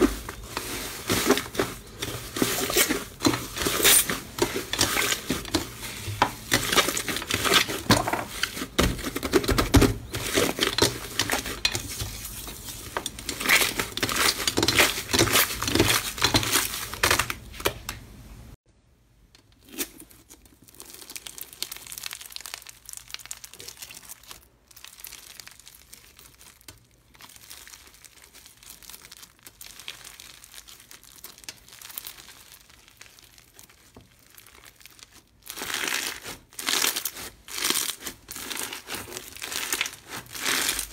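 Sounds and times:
slime crackling and crinkling: 0.0s - 18.3s, 19.4s - 40.9s
crunchy bead slime crackles: 19.6s - 40.9s.

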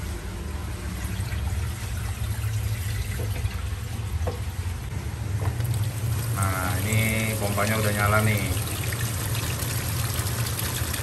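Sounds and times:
water pouring into aquarium: 5.6s - 11.0s.

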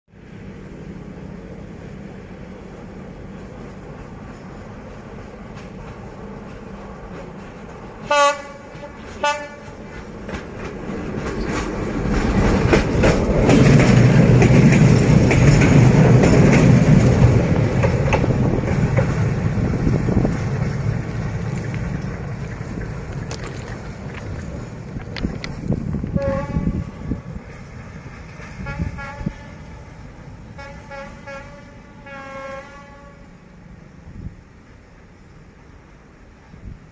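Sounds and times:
locomotive engine and wheels rumbling: 0.1s - 36.9s
locomotive horn blast: 8.0s - 9.8s, 26.1s - 27.2s, 28.4s - 33.5s.

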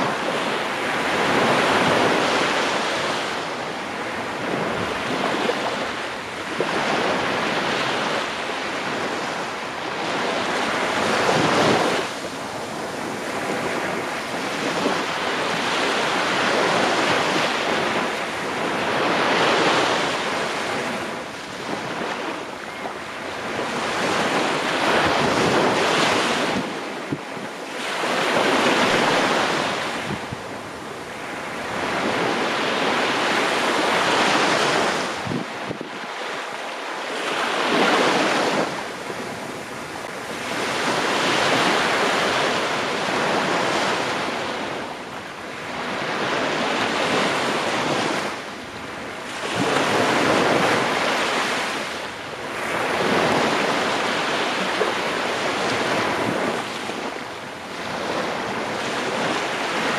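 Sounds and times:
wind buffeting microphone: 0.0s - 36.2s
small waves breaking on beach: 0.0s - 59.9s.

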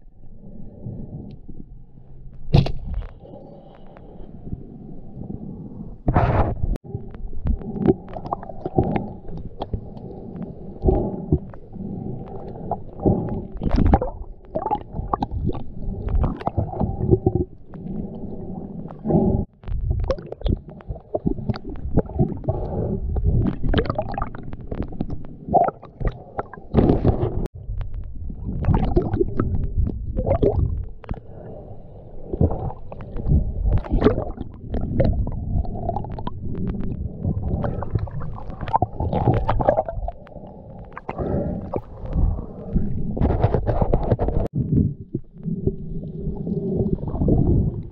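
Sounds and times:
muffled underwater water rumble: 0.0s - 47.9s.

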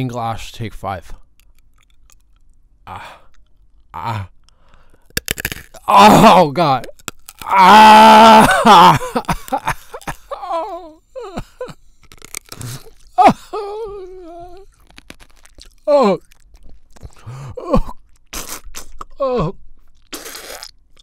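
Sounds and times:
crunching and chewing glass: 1.2s - 10.4s, 11.5s - 21.0s
person groaning and whimpering: 2.9s - 3.3s, 3.9s - 4.4s, 5.8s - 6.5s, 7.4s - 11.8s, 12.6s - 14.7s, 15.8s - 16.2s, 17.2s - 18.0s, 19.1s - 19.6s.

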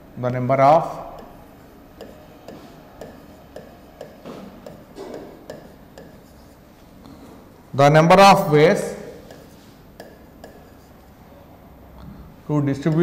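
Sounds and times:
stylus tapping on glass screen: 1.1s - 6.5s, 9.2s - 10.9s.

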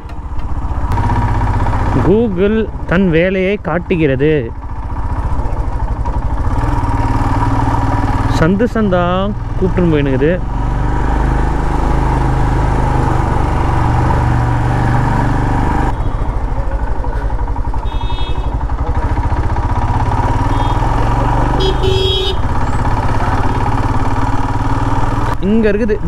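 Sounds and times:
motorcycle engine running: 0.0s - 26.0s
short horn toots: 20.4s - 22.5s.

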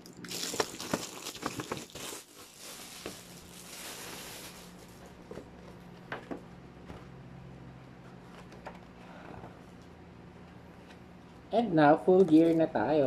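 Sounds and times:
plastic wrapping crinkling: 0.0s - 5.4s.

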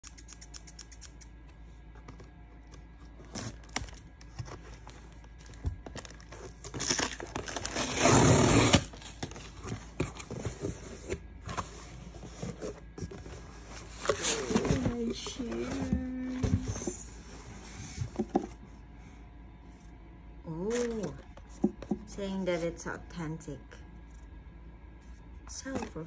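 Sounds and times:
scissors cutting packing tape: 0.0s - 1.3s
small clicks: 0.0s - 1.3s
cardboard flaps rustling: 3.0s - 18.6s
tape tearing off cardboard: 6.0s - 9.5s.

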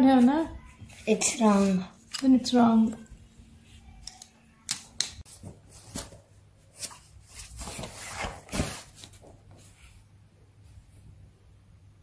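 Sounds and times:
handling and rustling: 5.2s - 10.0s.

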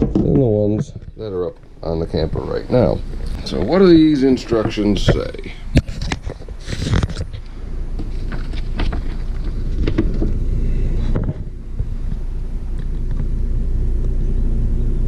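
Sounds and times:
paper sheet rustling: 5.8s - 7.4s, 8.0s - 10.4s
low rumble: 7.5s - 15.0s.

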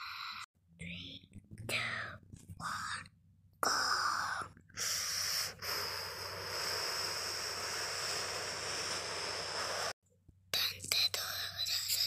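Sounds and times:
hissing wind-like whoosh: 5.8s - 10.0s.

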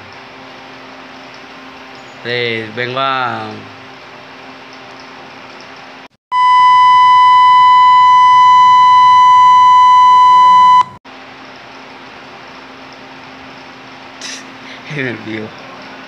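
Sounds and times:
electronic beep tone: 6.3s - 11.0s.

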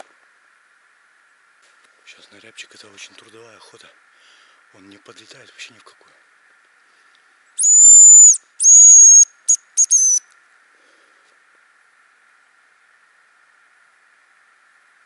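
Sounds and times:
bird call decoy whistle: 7.6s - 10.2s.

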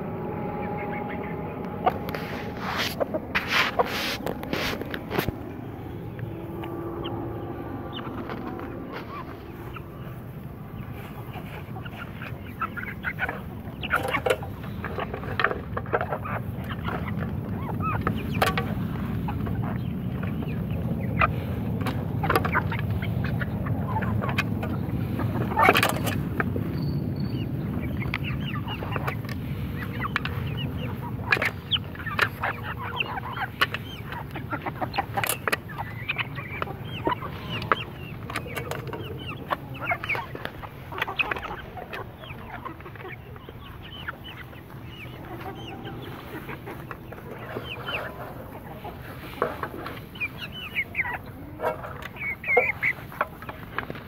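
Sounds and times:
low rumble: 0.0s - 25.6s, 35.7s - 51.0s
hens clucking: 0.0s - 54.0s
beaks pecking in metal pans: 0.7s - 54.0s.

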